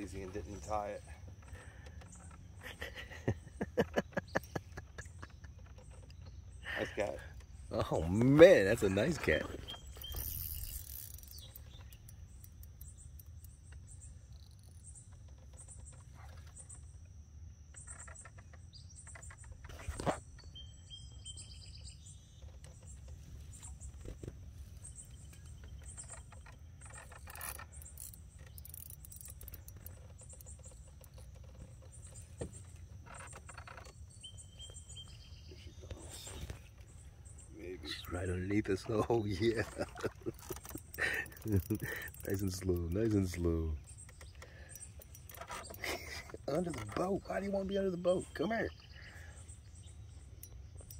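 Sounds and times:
birds chirping and calling: 0.0s - 16.9s, 17.7s - 50.9s
high insect trill: 0.0s - 50.9s.

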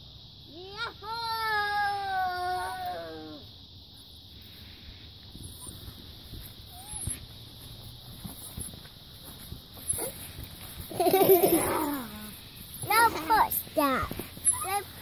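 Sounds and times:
small chirp: 4.4s - 6.0s, 6.6s - 7.3s
faint squeaks and ticks: 5.3s - 6.0s, 6.6s - 7.3s, 9.8s - 10.7s, 12.2s - 15.0s.

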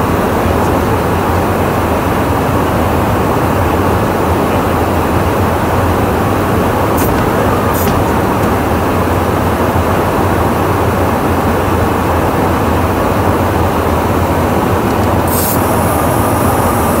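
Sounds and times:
aircraft engine drone: 0.0s - 17.0s
low hum: 3.9s - 11.0s
airflow rush: 4.0s - 10.6s
short high hiss: 15.2s - 17.0s.

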